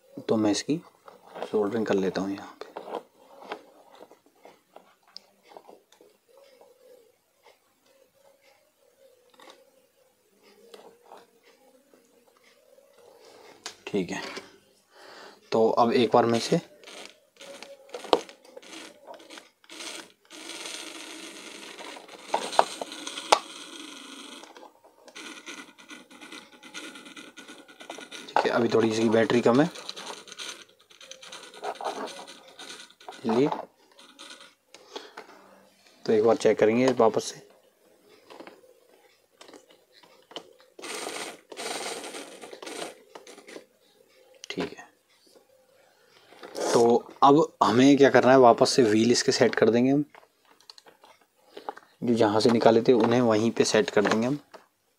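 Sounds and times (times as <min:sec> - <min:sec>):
toy electric motor and gearbox running: 0:15.8 - 0:35.2, 0:39.4 - 0:43.7, 0:52.0 - 0:54.4.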